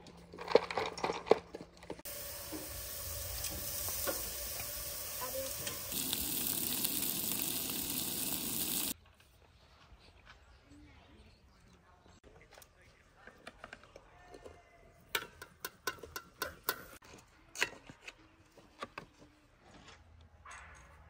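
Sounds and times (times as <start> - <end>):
asparagus sizzling in pan: 2.1 - 9.0
patties sizzling on grill: 2.1 - 9.0.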